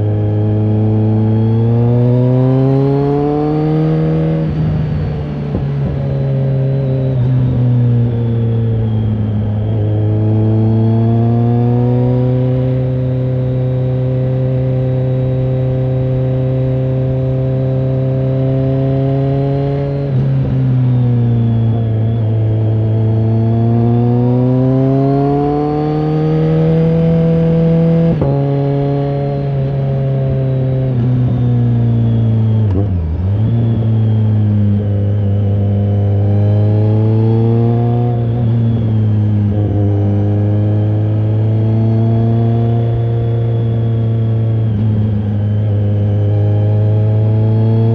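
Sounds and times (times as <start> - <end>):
motorcycle engine running: 0.0 - 47.9.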